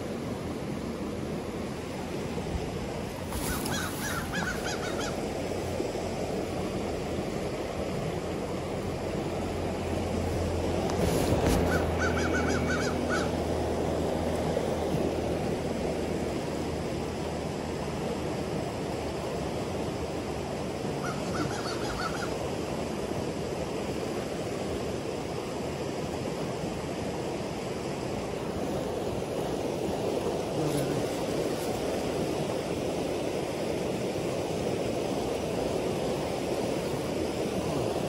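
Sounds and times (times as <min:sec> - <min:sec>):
river rushing over rocks: 0:00.0 - 0:38.0.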